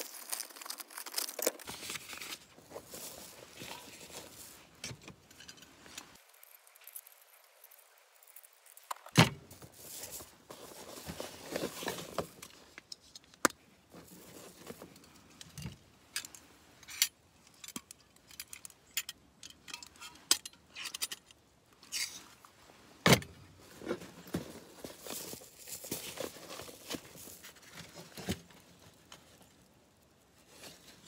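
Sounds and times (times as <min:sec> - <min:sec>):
handling rustle: 0:00.0 - 0:19.0, 0:19.6 - 0:31.0
metallic clicks and clatter: 0:14.9 - 0:22.1.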